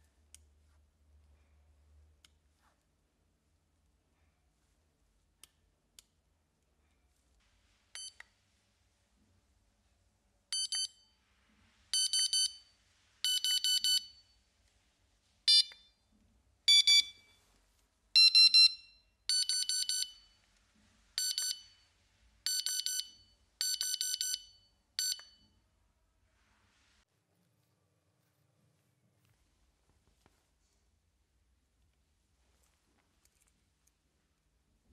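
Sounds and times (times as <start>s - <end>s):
bite alarm beeping: 10.5s - 11.1s, 11.9s - 14.3s, 15.5s - 15.9s, 16.7s - 17.3s, 18.2s - 20.4s, 21.2s - 21.8s, 22.5s - 25.4s.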